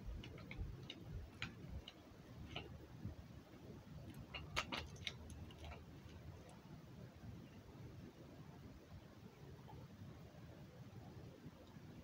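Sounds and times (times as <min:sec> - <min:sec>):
plastic bottle clicking and crackling: 0:04.1 - 0:06.2.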